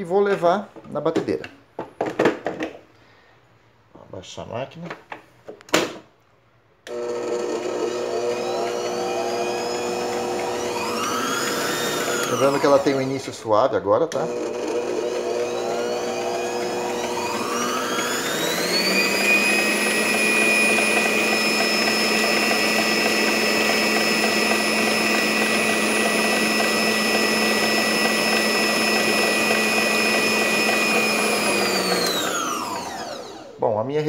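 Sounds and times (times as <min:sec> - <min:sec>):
stand mixer motor whining: 0:06.9 - 0:13.4, 0:14.1 - 0:33.6
whisk turning in bowl: 0:07.0 - 0:13.4, 0:14.2 - 0:32.8.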